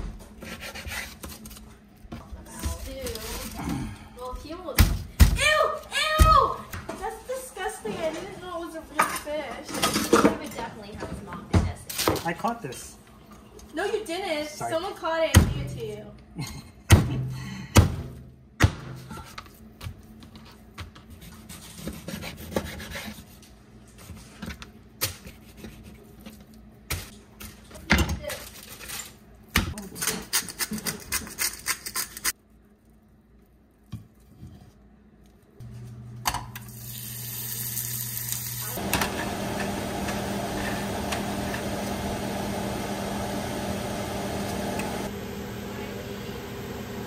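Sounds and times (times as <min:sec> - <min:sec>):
knife scraping through fish skin: 0:00.4 - 0:01.7
steady mechanical hum: 0:31.6 - 0:47.0.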